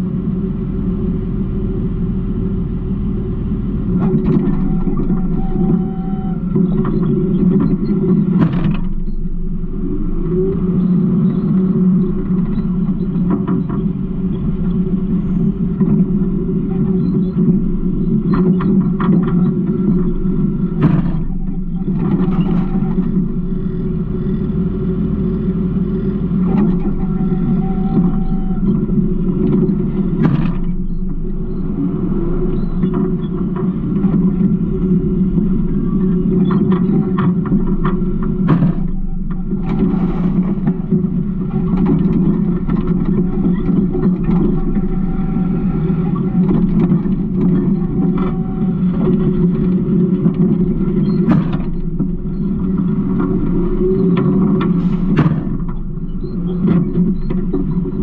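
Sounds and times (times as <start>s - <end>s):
garbage truck engine rumble: 0.0s - 58.0s
knocks and rattles: 36.0s - 58.0s
brief clatter: 36.4s - 44.6s, 50.3s - 52.4s, 53.9s - 58.0s.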